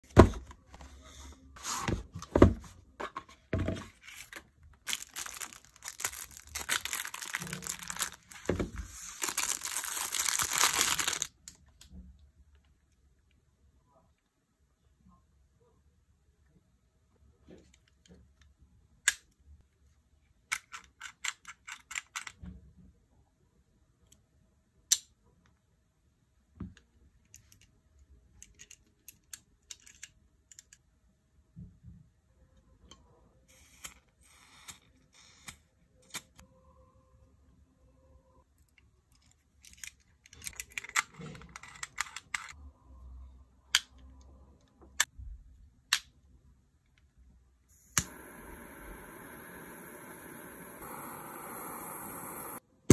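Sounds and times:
lighter clicks: 47.9 - 52.6.

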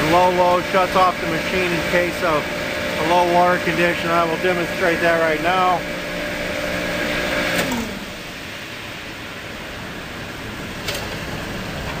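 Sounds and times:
pump humming: 0.0 - 12.0
steady mechanical noise: 0.0 - 12.0.

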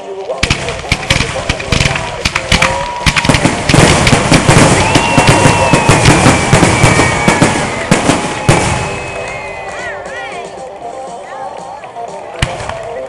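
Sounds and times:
fireworks bangs and crackles: 0.0 - 10.7, 12.3 - 13.0.

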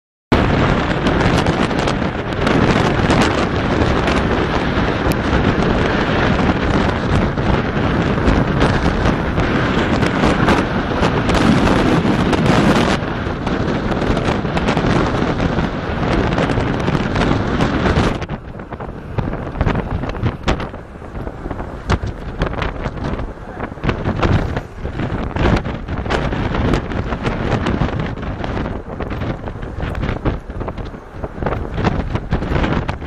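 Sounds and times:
storm wind buffeting microphone: 0.3 - 33.0.

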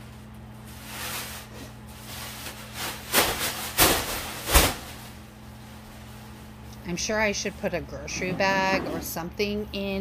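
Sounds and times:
plastic garbage bag rustling: 0.0 - 7.3.

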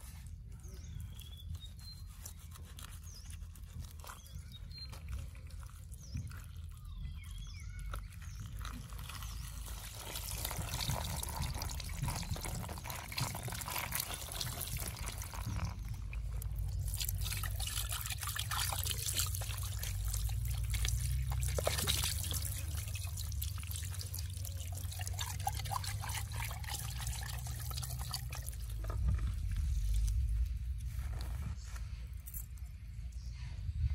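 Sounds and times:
hands washing fish: 0.0 - 30.8
water trickling and dripping: 4.9 - 30.6.

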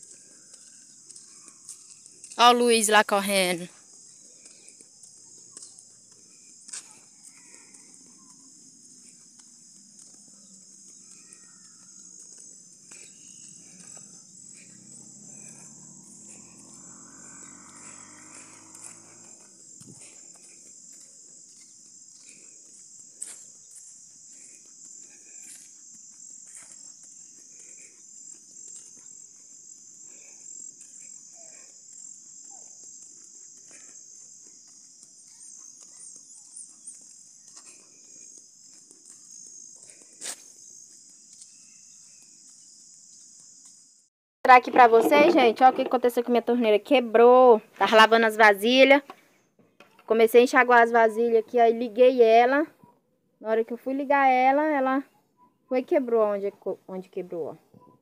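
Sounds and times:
insects chirring: 0.0 - 52.9.

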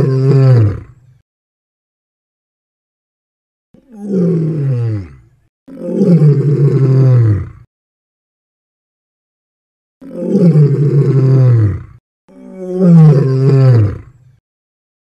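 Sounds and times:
lion roaring: 0.0 - 1.0, 3.8 - 7.7, 10.0 - 14.2.

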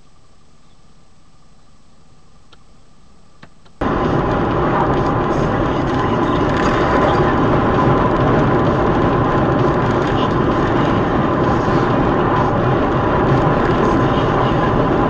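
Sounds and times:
faint steady whine: 0.0 - 15.0
car road and engine noise: 2.1 - 15.0.

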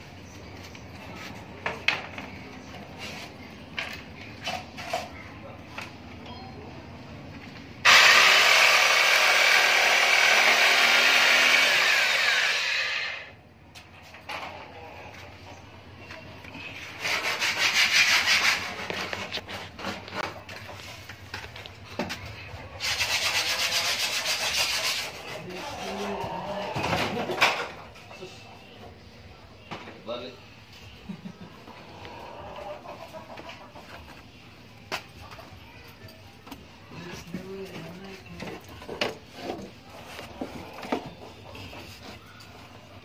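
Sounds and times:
electric jigsaw cutting wood: 7.8 - 13.3.

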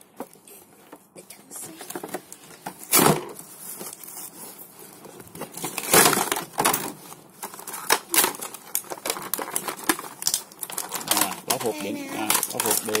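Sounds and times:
plastic packaging crinkling: 1.6 - 13.0
plastic tray clacking: 7.9 - 13.0.

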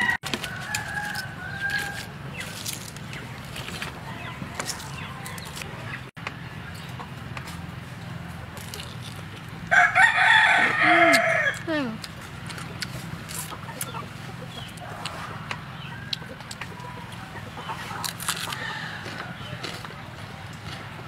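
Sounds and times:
rooster crowing: 0.0 - 2.2, 9.7 - 11.7, 18.3 - 19.8.

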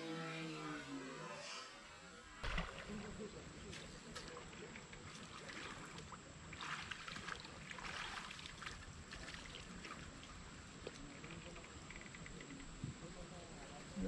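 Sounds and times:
faint river water: 0.9 - 14.0
fish splashing at surface: 2.4 - 3.1.

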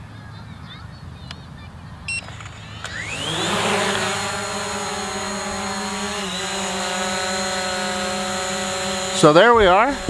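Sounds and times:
drone propellers buzzing: 2.0 - 10.0.

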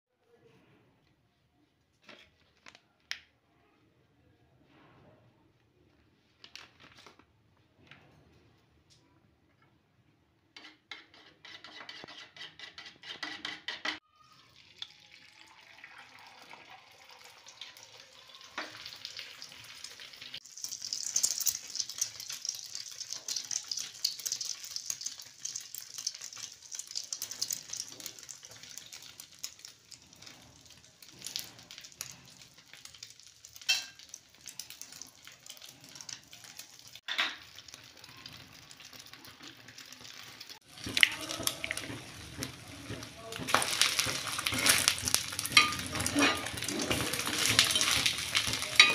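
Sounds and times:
metal spoon beating egg in bowl: 10.6 - 14.0, 40.8 - 48.9
egg sizzling in oil: 13.2 - 48.9.

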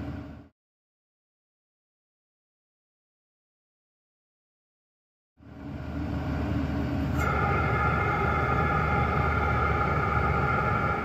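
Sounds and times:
air heater rumble and hum: 5.4 - 11.0
steady high whine: 5.4 - 11.0.

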